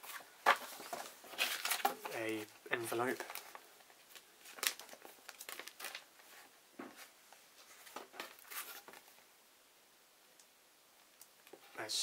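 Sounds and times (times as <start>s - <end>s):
plastic bag crinkling: 0.6s - 6.3s.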